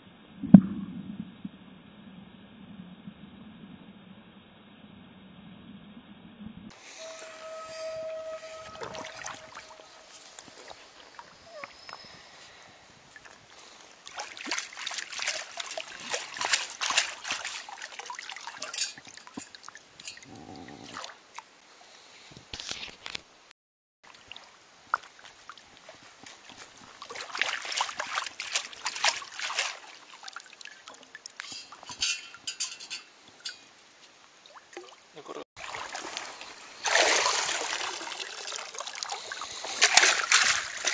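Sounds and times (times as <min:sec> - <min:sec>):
water draining from a scoop: 0:07.0 - 0:11.3, 0:35.6 - 0:40.9
water trickling: 0:07.0 - 0:12.2, 0:12.9 - 0:21.2, 0:24.1 - 0:40.9
sand and gravel crackling: 0:09.9 - 0:20.0, 0:24.4 - 0:34.2, 0:35.6 - 0:40.9.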